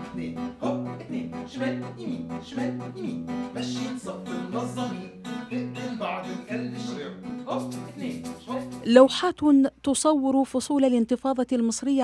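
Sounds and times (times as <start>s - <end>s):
bass pattern: 0.0s - 5.2s, 7.5s - 9.0s
acoustic guitar strumming: 0.0s - 9.1s
hand percussion: 7.6s - 8.9s.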